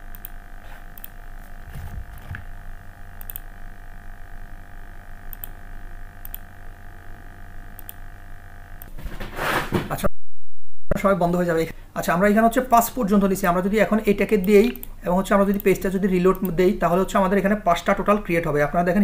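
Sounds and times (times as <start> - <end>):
computer mouse clicks: 0.0 - 1.2, 3.2 - 3.5, 5.3 - 5.6, 6.2 - 6.5, 7.8 - 8.0, 14.4 - 16.6
electrical hum: 0.0 - 19.0.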